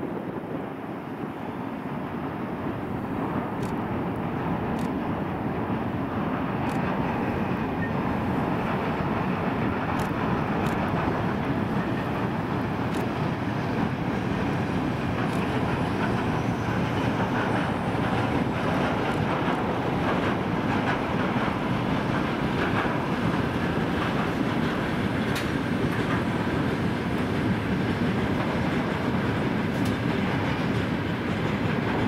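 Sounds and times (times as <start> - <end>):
train wheels rumbling on rails: 0.0 - 32.0.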